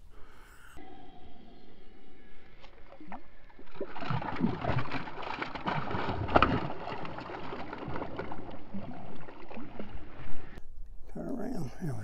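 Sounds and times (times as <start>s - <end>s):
fish splashing in water: 2.6s - 10.6s.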